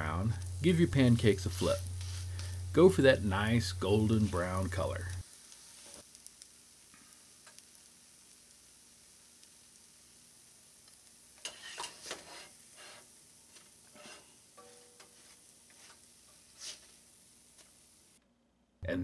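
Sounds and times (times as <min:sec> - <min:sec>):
pancakes sizzling in oil: 0:00.0 - 0:18.2
spatula scraping a pan: 0:11.4 - 0:13.1, 0:13.9 - 0:17.0.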